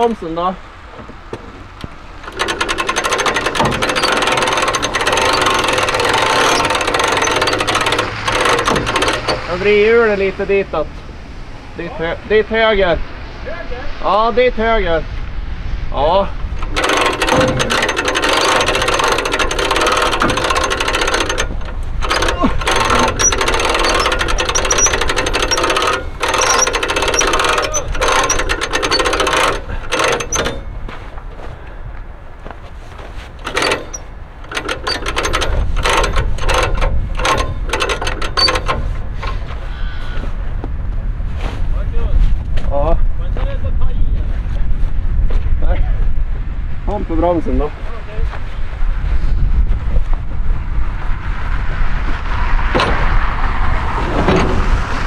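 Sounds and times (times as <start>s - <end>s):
winch mechanical clatter: 1.6s - 10.9s, 16.6s - 31.0s, 33.3s - 39.7s, 52.6s - 55.0s.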